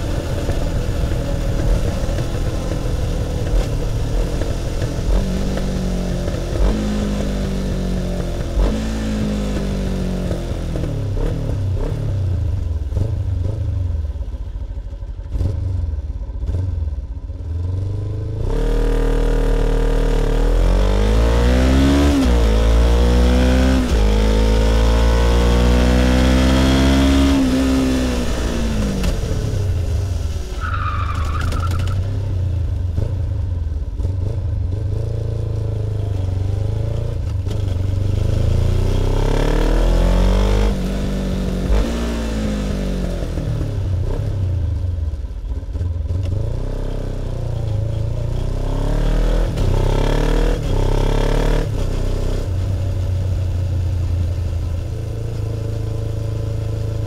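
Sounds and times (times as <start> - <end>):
motorcycle engine revving: 0.0 - 30.1, 31.2 - 57.0
short high squeal: 30.5 - 32.0.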